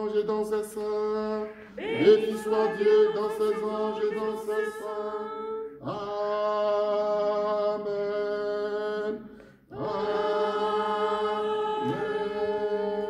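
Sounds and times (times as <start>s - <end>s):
unaccompanied liturgical chant: 0.0s - 13.0s.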